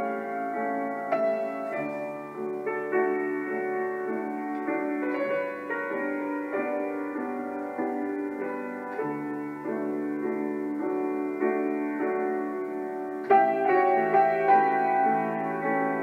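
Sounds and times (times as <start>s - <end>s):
slow gentle instrumental music: 0.0s - 16.0s.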